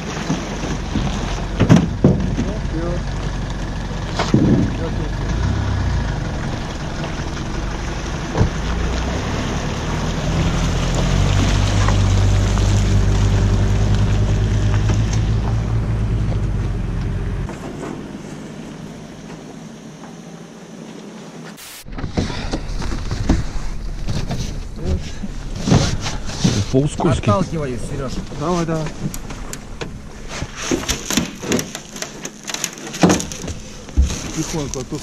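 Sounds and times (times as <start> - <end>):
truck engine under load: 0.0 - 19.7, 21.9 - 35.0.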